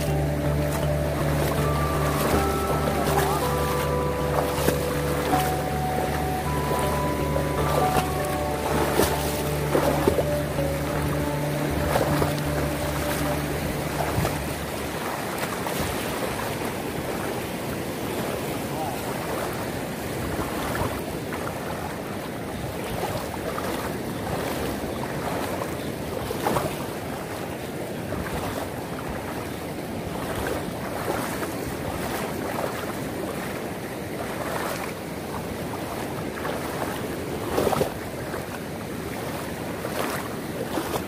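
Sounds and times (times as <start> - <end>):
loud splashes: 0.0 - 22.0
legs wading through water: 0.0 - 41.0
surf rushing: 0.0 - 41.0
wind on microphone: 0.0 - 41.0.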